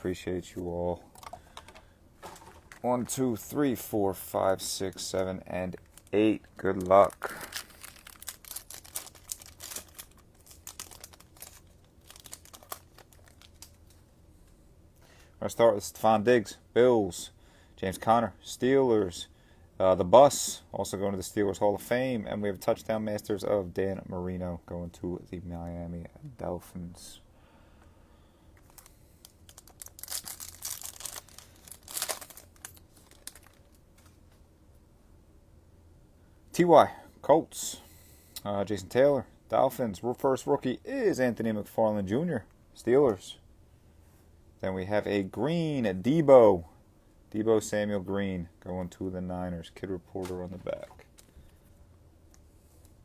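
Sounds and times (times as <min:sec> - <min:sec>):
foil wrappers crinkling and tearing: 0:05.7 - 0:14.0, 0:28.6 - 0:34.1.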